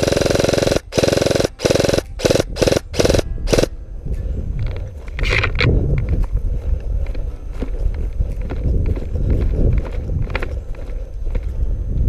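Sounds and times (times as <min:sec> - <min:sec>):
airsoft rifle firing bursts: 0:00.0 - 0:03.7.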